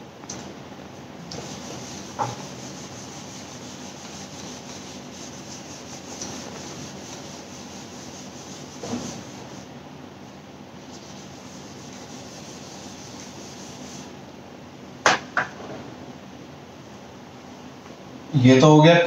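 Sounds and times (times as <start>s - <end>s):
eraser rubbing on whiteboard: 1.3s - 9.7s, 10.9s - 14.2s.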